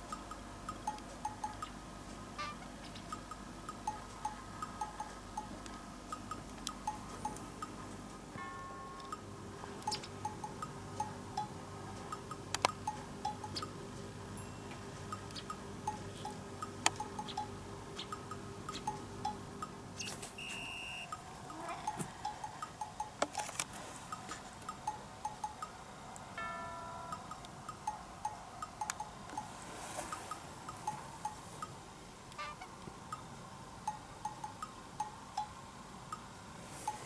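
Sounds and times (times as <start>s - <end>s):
ticking percussion: 0.0s - 19.8s, 21.0s - 37.0s
faint steady hum: 0.0s - 37.0s
plinking bell-like music: 8.3s - 9.3s, 14.4s - 15.2s, 26.4s - 28.4s.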